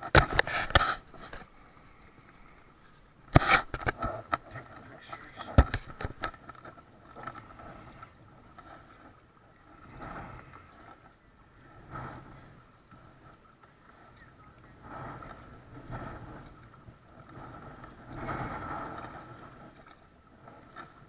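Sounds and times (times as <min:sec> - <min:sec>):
knocks and scrapes on plastic kayak: 0:00.0 - 0:01.6, 0:03.3 - 0:09.2.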